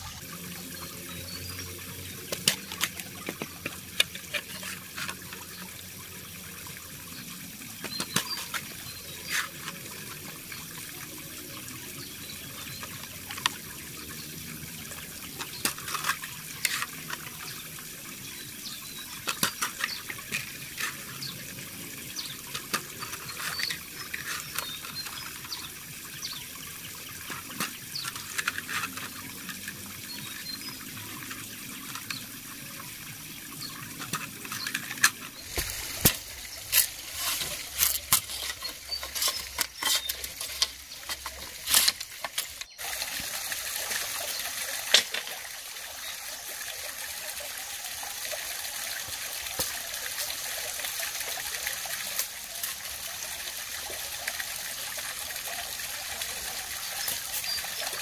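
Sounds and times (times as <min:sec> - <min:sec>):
bamboo cracking: 0:35.0 - 0:42.7.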